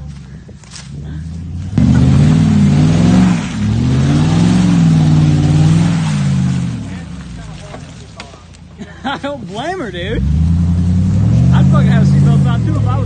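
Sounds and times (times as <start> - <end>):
car engine revving hard: 1.4 - 7.3, 10.0 - 13.0.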